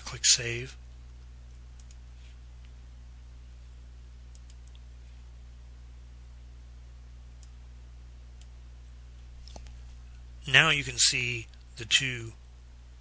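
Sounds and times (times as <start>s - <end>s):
low electrical hum: 0.0s - 13.0s
computer mouse clicks: 1.5s - 2.0s, 4.3s - 4.8s.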